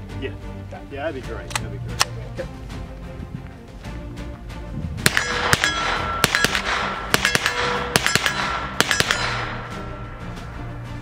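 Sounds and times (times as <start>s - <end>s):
gunshots with echo: 5.0s - 10.6s.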